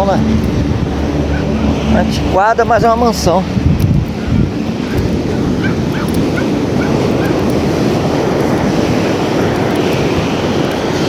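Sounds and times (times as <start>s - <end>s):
surf rushing: 0.0s - 11.0s
wind on microphone: 0.0s - 11.0s
high rising animal calls: 1.0s - 2.0s.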